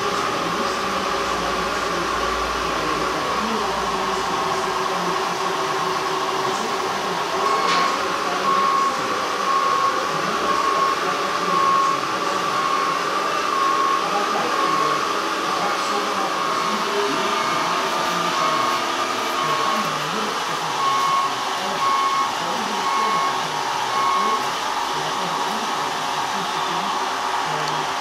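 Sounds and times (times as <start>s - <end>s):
electric motor and pump whining: 0.0s - 28.0s
reversing beeper: 6.4s - 25.4s.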